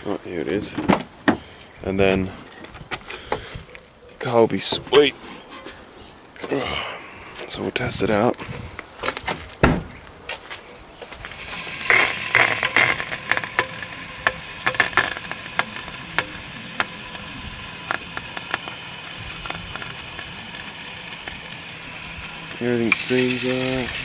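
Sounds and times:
hose water hissing and splashing: 0:11.1 - 0:24.0.

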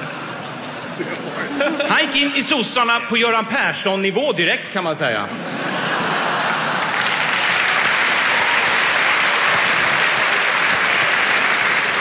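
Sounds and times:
audience applauding: 0:05.9 - 0:12.0.

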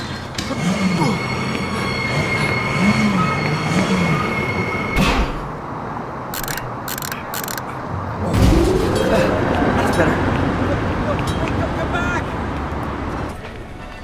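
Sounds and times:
high wheel squeal: 0:00.0 - 0:05.1
cable car rumbling on rails: 0:00.0 - 0:05.9, 0:07.9 - 0:14.0.

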